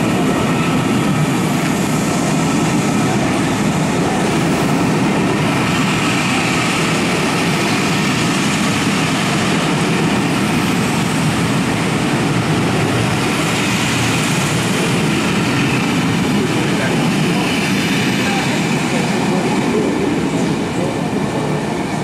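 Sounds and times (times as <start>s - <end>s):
train wheels rushing on rail: 0.0s - 22.0s.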